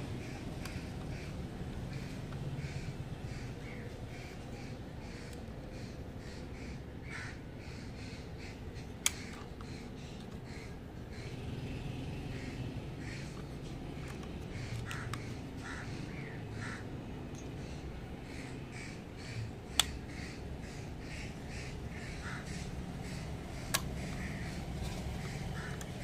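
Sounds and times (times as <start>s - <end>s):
crows cawing: 0.0s - 11.6s, 12.2s - 26.0s
toy car door clicks: 23.6s - 24.2s.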